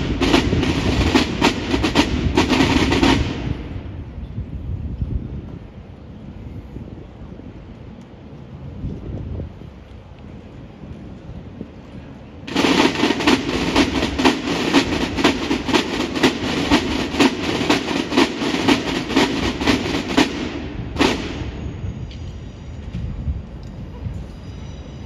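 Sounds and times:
side drums beating: 0:00.0 - 0:03.6, 0:12.5 - 0:21.8.

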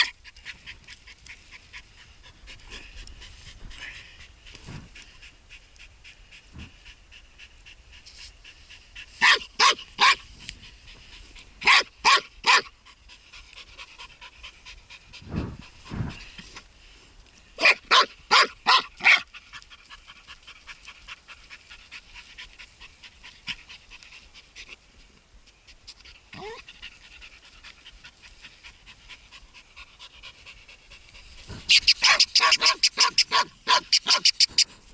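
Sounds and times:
dog panting: 0:00.0 - 0:09.2, 0:19.2 - 0:24.8, 0:25.5 - 0:34.7
low muffled thuds: 0:15.2 - 0:16.2.

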